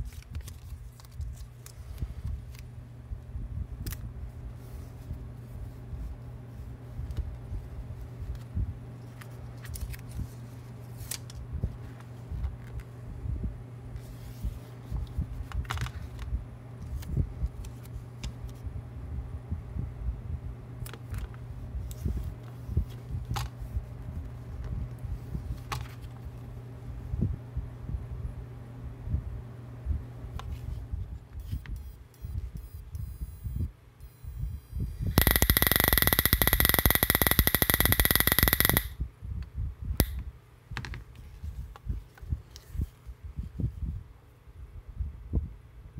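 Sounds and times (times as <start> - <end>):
paper label crinkle: 0.0 - 2.7
steady low hum: 0.0 - 45.9
high whine: 32.2 - 39.0
sharp click: 35.0 - 39.0, 40.0 - 40.2
electric spark crackling: 35.2 - 39.0.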